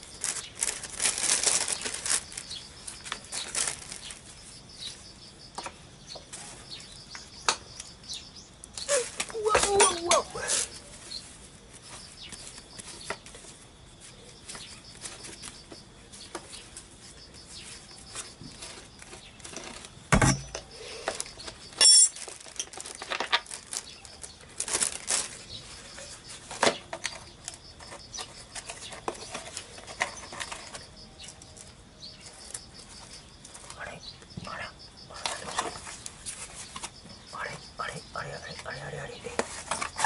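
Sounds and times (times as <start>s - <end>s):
plastic bag rustling: 0.0s - 4.7s, 22.1s - 26.7s
metallic clink: 21.8s - 22.2s.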